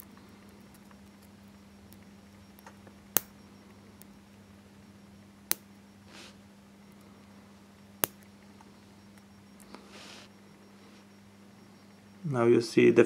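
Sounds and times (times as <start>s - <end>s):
faint steady hum: 0.0s - 13.0s
sharp metallic clicks: 8.0s - 8.5s.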